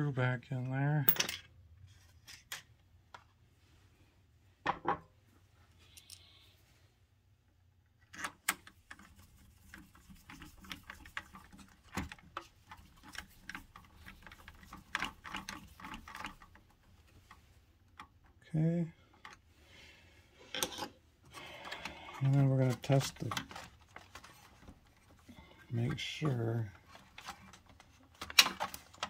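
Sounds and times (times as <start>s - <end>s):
screw turning ticks and scraping: 9.7s - 18.1s.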